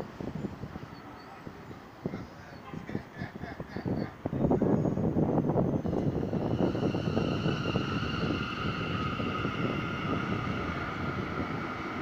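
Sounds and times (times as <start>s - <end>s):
train wheels rumbling on rails: 2.9s - 12.0s.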